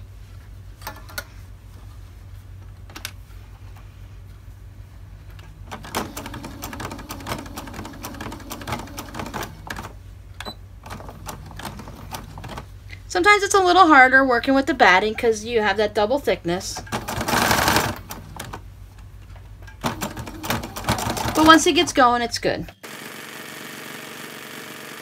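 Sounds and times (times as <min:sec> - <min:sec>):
sewing machine motor hum: 0:05.4 - 0:12.9, 0:16.8 - 0:18.6, 0:19.8 - 0:22.2, 0:22.8 - 0:25.0.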